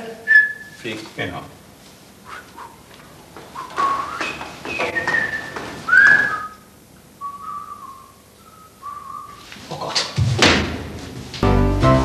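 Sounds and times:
person whistling a tune: 0:03.6 - 0:06.6, 0:07.2 - 0:09.4.

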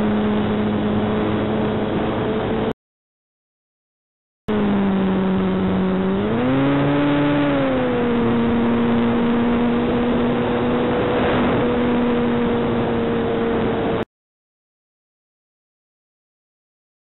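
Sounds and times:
model plane motor droning: 0:00.0 - 0:02.7, 0:04.5 - 0:14.0.

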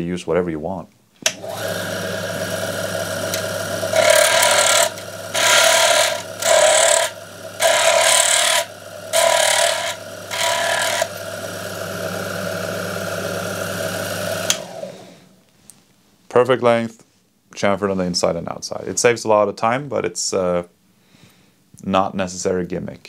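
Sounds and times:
trimmer motor humming: 0:01.3 - 0:15.4.

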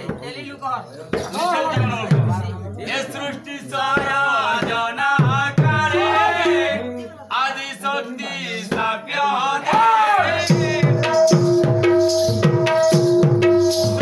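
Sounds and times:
hand drums: 0:01.1 - 0:02.6, 0:04.0 - 0:06.9, 0:09.8 - 0:14.0
person singing: 0:04.3 - 0:07.2.

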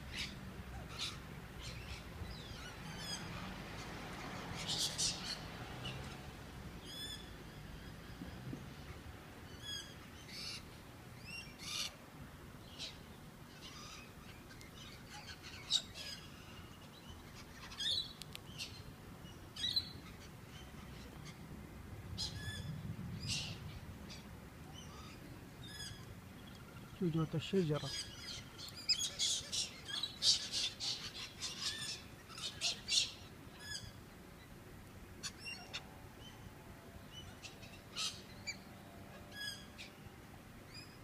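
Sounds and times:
cockatoos calling: 0:22.2 - 0:34.0, 0:37.1 - 0:40.0.

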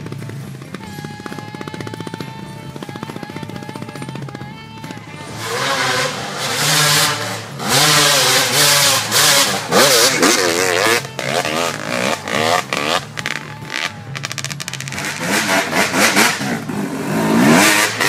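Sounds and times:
dirt bike engine revving: 0:00.0 - 0:18.0.

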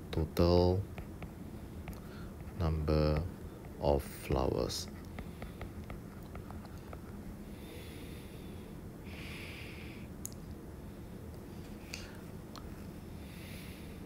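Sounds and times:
low microphone hum: 0:00.0 - 0:14.0
faint taps: 0:01.0 - 0:02.5.

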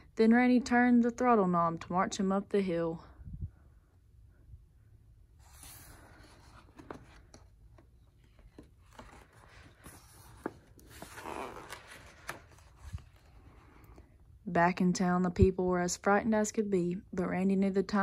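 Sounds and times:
page swishing: 0:05.4 - 0:07.4, 0:08.5 - 0:13.3
book page rustling: 0:05.4 - 0:13.8.

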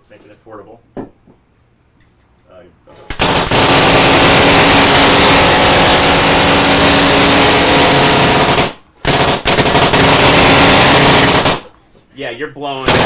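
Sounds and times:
paintball gatling gun firing: 0:03.1 - 0:11.7.

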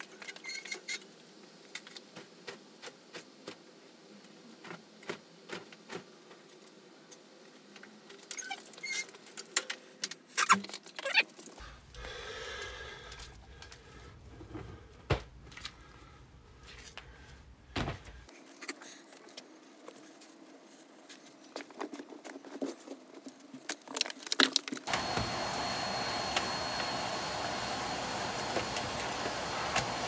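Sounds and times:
vacuum cleaner running: 0:24.9 - 0:30.0.

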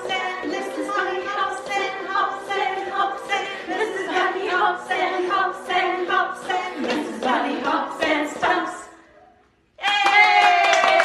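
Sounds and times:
women singing a children's song: 0:00.0 - 0:09.0.

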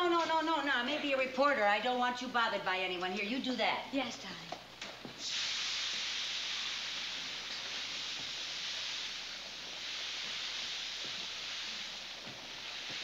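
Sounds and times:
water spraying from hose nozzle: 0:05.2 - 0:13.0.

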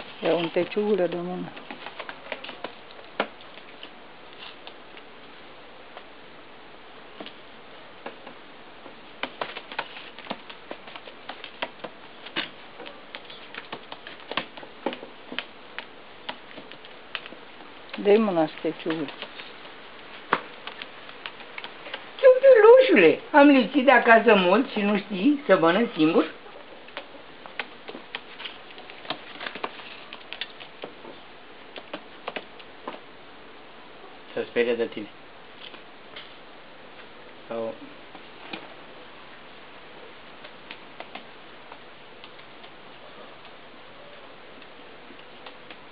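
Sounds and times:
pigeon pecking clicks: 0:01.1 - 0:04.0, 0:09.2 - 0:22.2, 0:26.8 - 0:31.1, 0:31.7 - 0:33.0, 0:40.4 - 0:42.8, 0:44.5 - 0:45.9.

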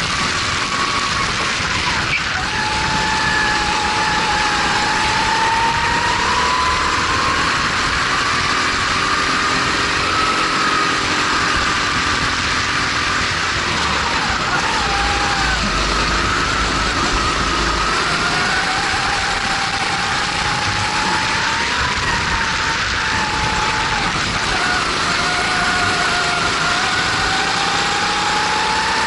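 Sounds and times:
wind noise rushing: 0:00.0 - 0:28.6
kart engine revving: 0:00.0 - 0:29.0.

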